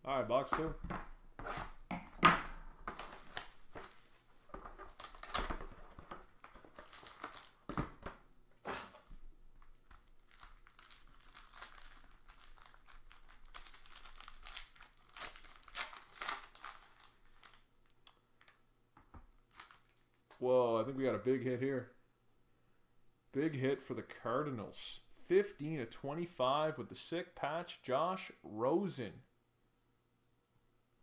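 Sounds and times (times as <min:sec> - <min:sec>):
pack wrapper crinkling: 0:02.9 - 0:08.0, 0:09.6 - 0:18.6, 0:19.4 - 0:20.3.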